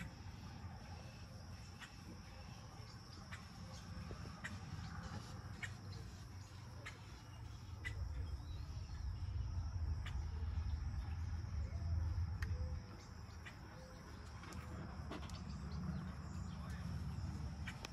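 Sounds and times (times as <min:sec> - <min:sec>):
low rumble: 0:07.8 - 0:17.7.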